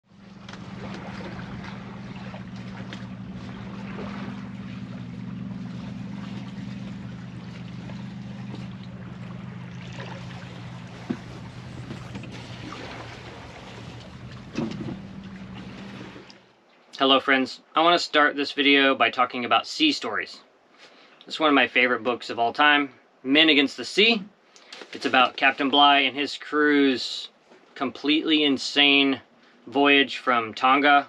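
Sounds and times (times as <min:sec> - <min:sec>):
water rushing along hull: 0:00.0 - 0:16.7
steady low hum: 0:00.1 - 0:16.7.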